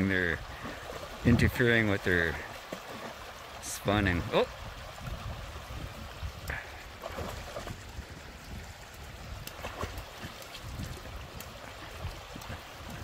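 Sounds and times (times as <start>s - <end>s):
stream running over stones: 0.0s - 13.0s
dog splashing in water: 7.0s - 7.8s, 9.5s - 13.0s.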